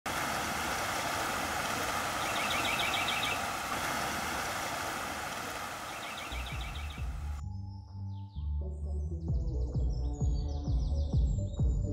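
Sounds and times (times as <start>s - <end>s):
river rushing: 0.0s - 7.4s
songbird trilling: 1.6s - 7.4s.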